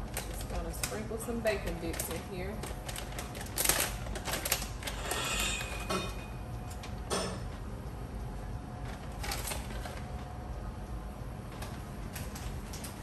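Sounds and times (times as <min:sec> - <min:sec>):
plastic bag crinkling: 0:00.0 - 0:05.9, 0:08.8 - 0:10.2.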